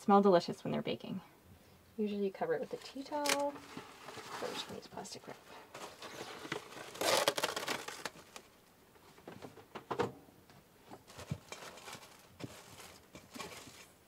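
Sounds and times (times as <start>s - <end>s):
cling wrap crinkling: 2.7s - 8.6s, 11.0s - 14.0s.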